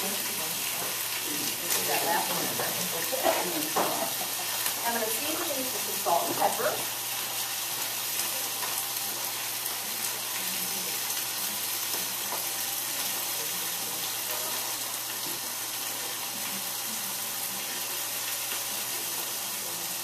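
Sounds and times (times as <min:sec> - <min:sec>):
meat sizzling in a pan: 0:00.0 - 0:20.0.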